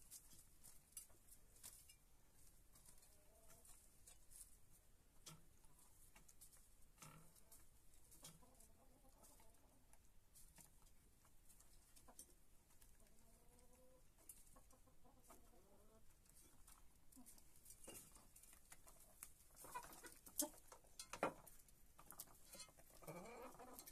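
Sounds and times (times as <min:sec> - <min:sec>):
hens clucking: 0:05.5 - 0:23.9.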